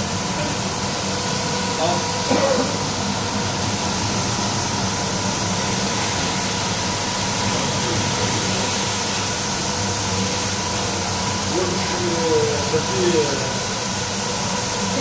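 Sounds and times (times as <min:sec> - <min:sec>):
hiss of water spray: 0:00.0 - 0:15.0
machine motor hum: 0:00.0 - 0:15.0
rotating brushes scrubbing carpet: 0:01.0 - 0:15.0.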